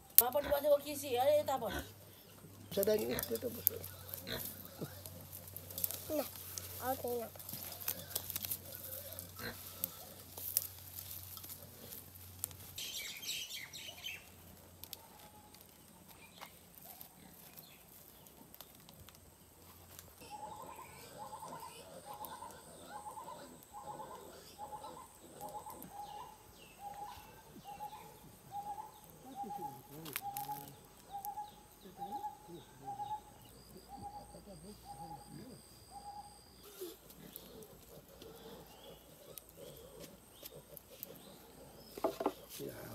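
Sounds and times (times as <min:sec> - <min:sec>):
bird chirping: 0:12.8 - 0:14.4, 0:20.2 - 0:42.9.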